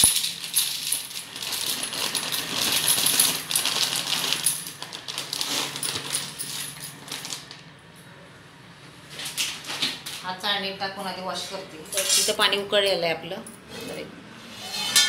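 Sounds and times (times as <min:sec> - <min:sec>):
dry pasta rattling into metal bowl: 0:00.0 - 0:07.6.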